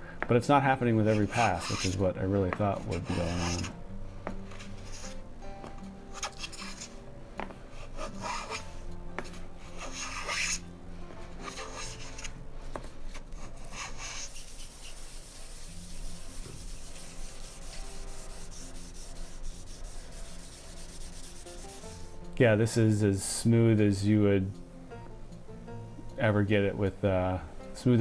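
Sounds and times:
hand rubbing wood: 0:01.0 - 0:10.6, 0:11.3 - 0:22.1
wood plane hissing along a board: 0:01.1 - 0:02.0, 0:02.8 - 0:03.7, 0:13.6 - 0:22.0.

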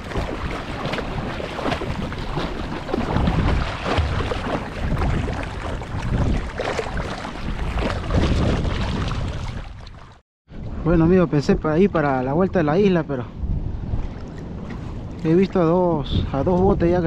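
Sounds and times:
sea water sloshing and splashing: 0:00.0 - 0:10.8, 0:13.6 - 0:15.5
wind buffeting microphone: 0:00.0 - 0:17.0.

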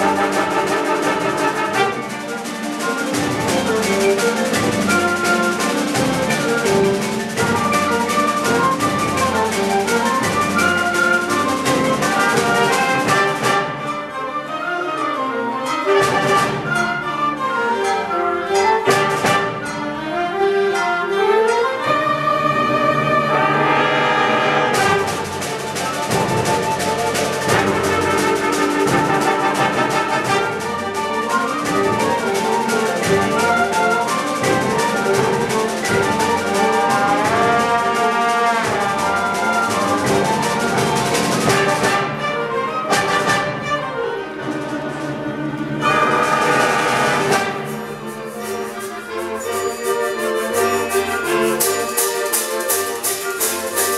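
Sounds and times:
symphonic band playing: 0:00.0 - 0:53.9
percussion hit: 0:23.4 - 0:30.8
sharp percussion strikes: 0:23.4 - 0:42.0, 0:45.8 - 0:53.9.

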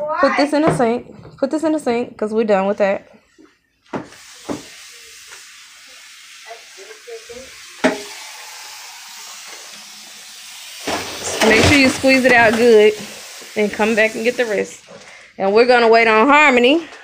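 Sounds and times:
tap water running into sink: 0:04.0 - 0:14.8.

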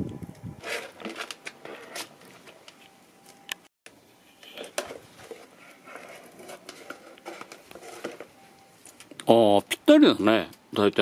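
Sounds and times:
plastic spatula scraping bucket: 0:00.6 - 0:02.2, 0:04.4 - 0:08.4.

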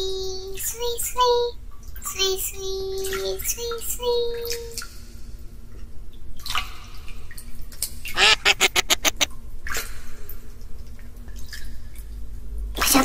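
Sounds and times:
duck quacking: 0:08.2 - 0:09.3.

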